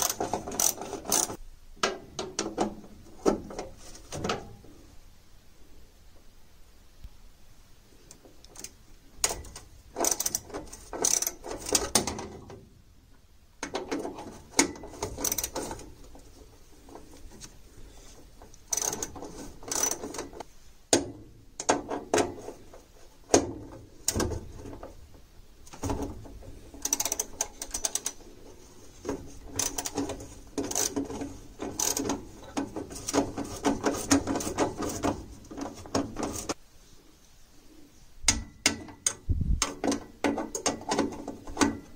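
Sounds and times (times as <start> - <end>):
ratchet wrench clicking: 0.0 - 1.4, 10.0 - 11.9, 18.7 - 20.2, 26.8 - 28.2, 29.6 - 30.0, 30.6 - 31.0, 31.7 - 32.1.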